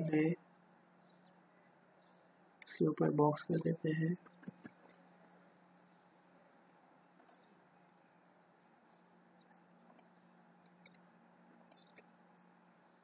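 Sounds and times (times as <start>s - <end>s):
faint room hum: 0.0s - 13.0s
computer mouse clicks: 9.8s - 11.0s.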